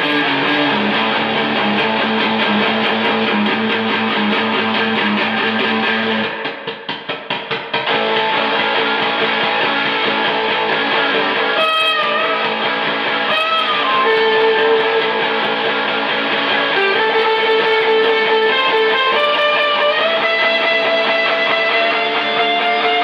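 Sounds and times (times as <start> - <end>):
electric guitar ringing notes: 0.0 - 23.0.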